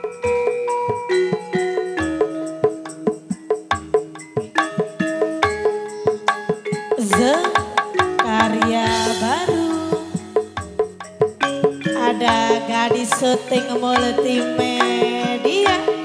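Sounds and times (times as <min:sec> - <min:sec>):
hand drum beat: 0:00.0 - 0:16.0
held pitched notes: 0:00.0 - 0:16.0
wooden percussion strikes: 0:00.0 - 0:16.0
sliding melody line: 0:04.1 - 0:16.0.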